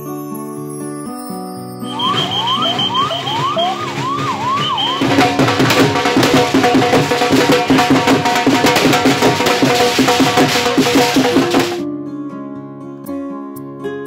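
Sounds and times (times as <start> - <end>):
siren wailing: 1.8 - 6.0
drum-led music: 1.9 - 11.8.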